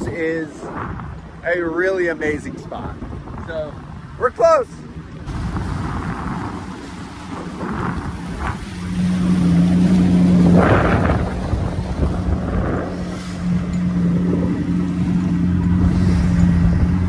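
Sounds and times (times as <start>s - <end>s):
water noise: 0.0s - 17.0s
wind noise on microphone: 0.0s - 17.0s
outboard motor running: 2.7s - 17.0s
loud rush of noise: 5.2s - 17.0s.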